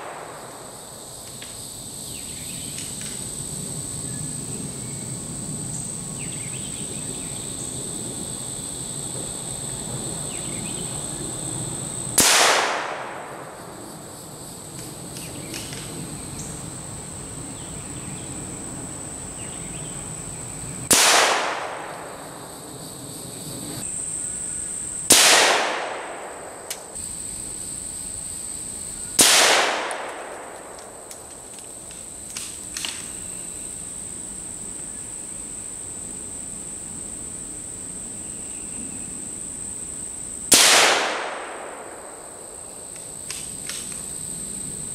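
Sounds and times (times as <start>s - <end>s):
rifle shots with echo: 0.0s - 0.7s, 12.2s - 13.6s, 20.9s - 22.1s, 25.1s - 26.7s, 29.2s - 31.1s, 40.5s - 42.4s
high insect drone: 0.0s - 44.9s.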